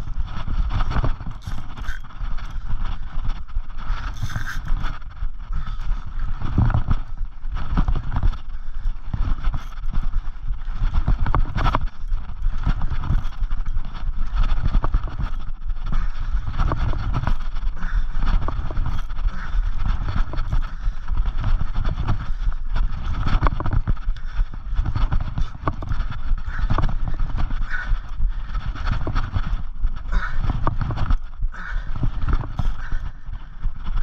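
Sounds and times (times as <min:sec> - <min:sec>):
wind buffeting microphone: 0:00.0 - 0:34.0
fishing reel clicking and scraping: 0:04.1 - 0:04.9.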